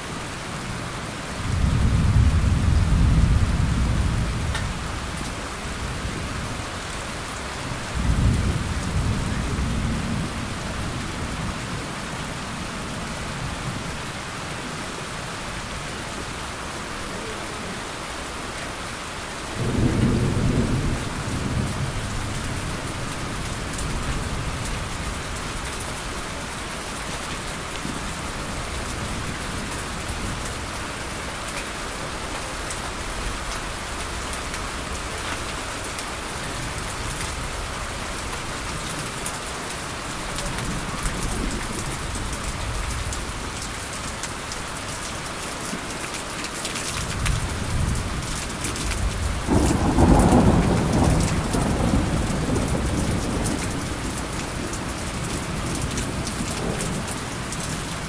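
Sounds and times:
steady rain: 0:00.0 - 0:58.0
thunder rumbling: 0:01.5 - 0:06.6, 0:19.6 - 0:25.4, 0:47.2 - 0:58.0.

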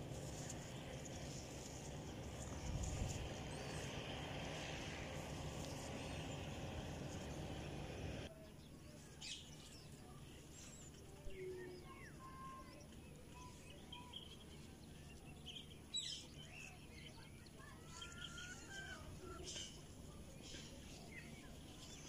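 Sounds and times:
small bird chirps: 0:09.0 - 0:19.8.

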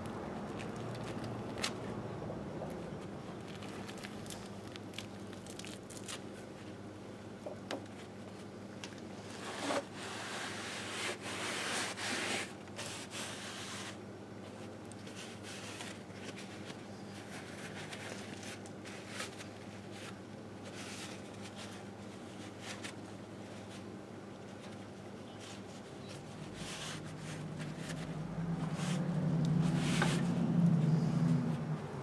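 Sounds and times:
steady low hum: 0:00.0 - 0:32.0
low rumble: 0:27.0 - 0:32.0.

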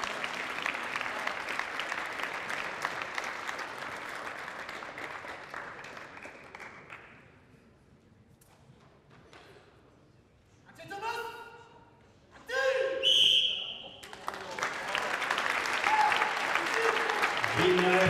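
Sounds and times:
audience applause: 0:00.0 - 0:07.1, 0:14.0 - 0:18.0.

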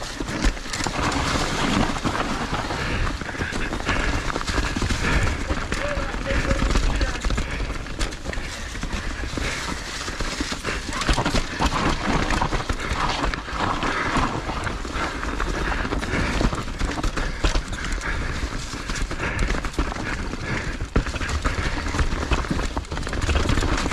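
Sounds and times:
ski edges scraping snow: 0:00.0 - 0:07.2.

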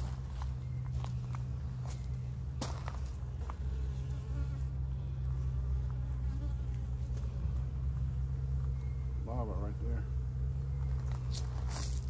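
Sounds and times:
bees buzzing: 0:00.0 - 0:09.2.

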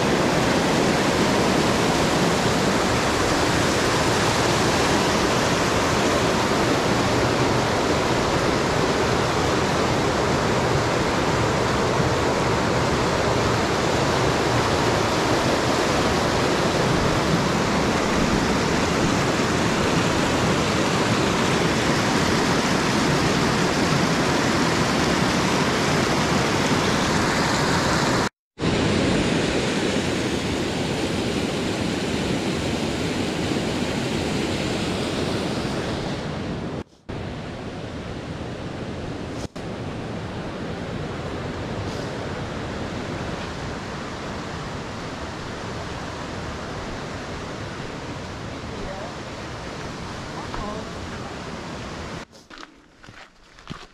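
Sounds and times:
waterfall rushing: 0:00.0 - 0:37.2.

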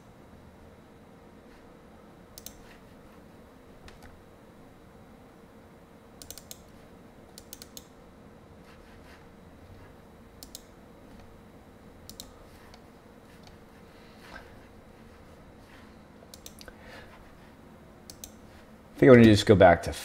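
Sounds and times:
faint steady hum: 0:00.0 - 0:20.0
computer mouse clicking: 0:02.4 - 0:02.8, 0:06.2 - 0:06.7, 0:07.3 - 0:07.9, 0:10.4 - 0:10.7, 0:12.0 - 0:12.8, 0:16.3 - 0:16.8, 0:18.1 - 0:18.4.

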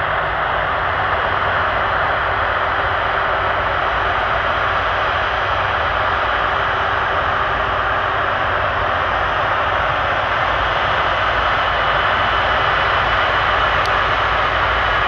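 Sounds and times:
jet engines running: 0:00.0 - 0:15.0.

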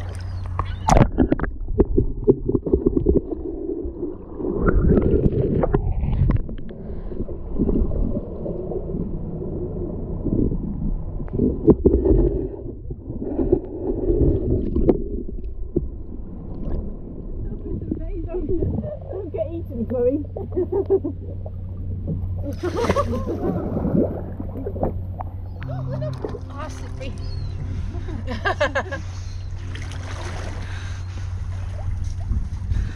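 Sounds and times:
muffled underwater gurgling: 0:00.0 - 0:28.3.

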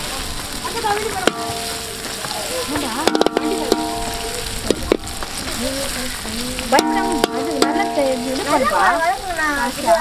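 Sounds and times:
vegetables sizzling in hot oil: 0:00.0 - 0:10.0
metal skimmer scraping pan: 0:02.8 - 0:05.6, 0:06.7 - 0:09.2.

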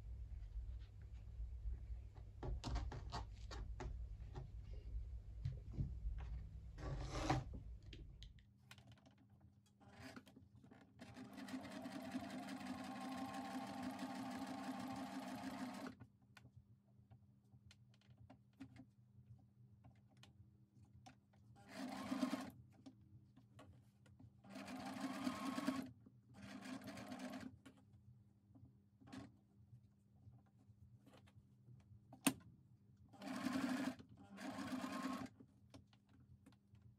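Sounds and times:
sewing machine stitching: 0:11.0 - 0:16.0, 0:21.6 - 0:22.5, 0:24.5 - 0:27.5, 0:33.2 - 0:35.4.

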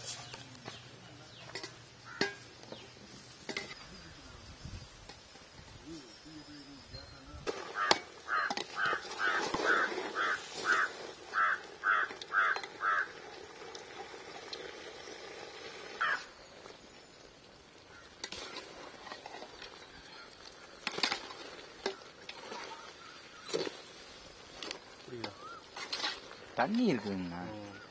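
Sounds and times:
crow cawing: 0:02.0 - 0:02.4, 0:07.7 - 0:13.2, 0:16.0 - 0:16.3, 0:17.9 - 0:18.6, 0:21.9 - 0:23.5.

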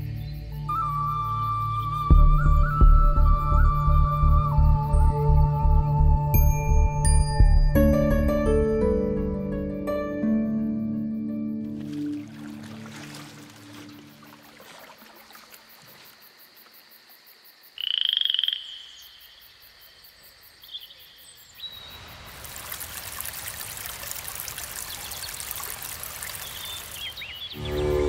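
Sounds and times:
frog call: 0:17.7 - 0:20.0.

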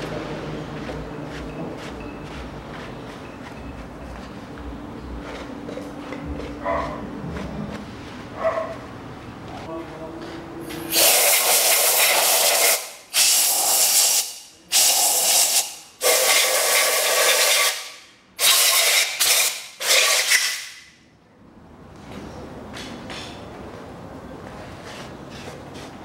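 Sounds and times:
air blow gun hissing blasts: 0:10.8 - 0:20.6.

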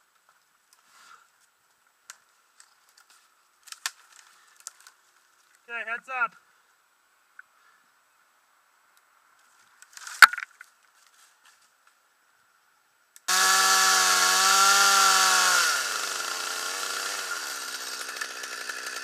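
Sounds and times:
wood cracking: 0:02.1 - 0:05.6, 0:09.8 - 0:10.7
chainsaw cutting wood: 0:13.3 - 0:19.0.

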